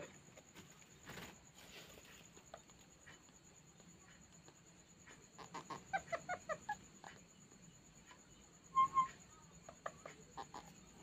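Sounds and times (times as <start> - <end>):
parakeet chattering: 5.3 - 7.4, 8.8 - 11.0.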